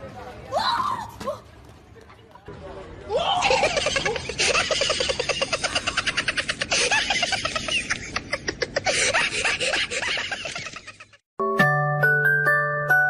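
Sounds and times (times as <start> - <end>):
person laughing hard: 3.4 - 11.2.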